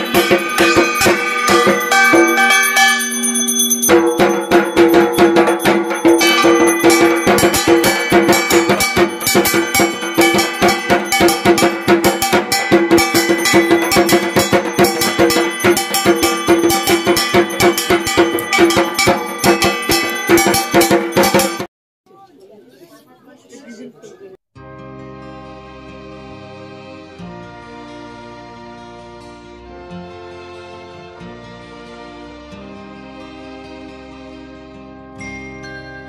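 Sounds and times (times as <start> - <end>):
drum beaten in fast rhythm: 0.0 - 21.7
held ringing tones: 0.0 - 21.7
metal bells clanging: 0.0 - 21.7.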